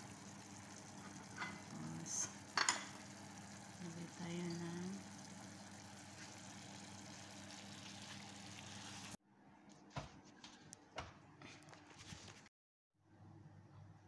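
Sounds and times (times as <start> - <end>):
pan sizzling on stove: 0.0 - 9.2.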